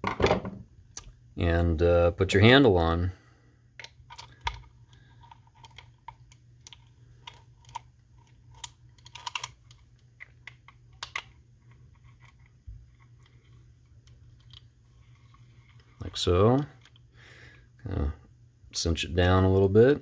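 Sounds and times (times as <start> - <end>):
small metal parts clicking: 5.2 - 12.5.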